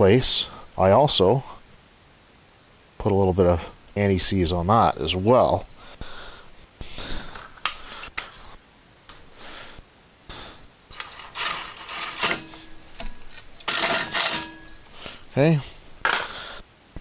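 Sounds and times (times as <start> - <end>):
cordless drill driving screw: 10.9 - 12.7, 13.6 - 14.6.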